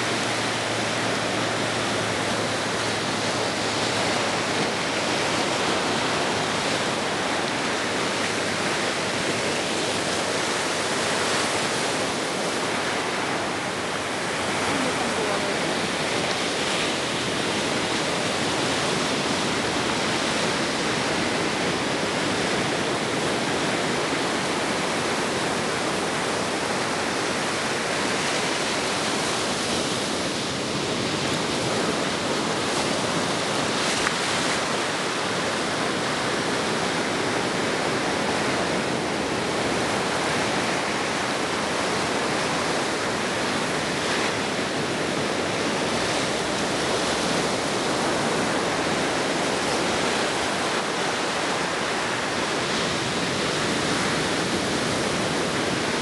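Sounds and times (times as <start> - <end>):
ocean surf washing in: 0.0 - 56.0.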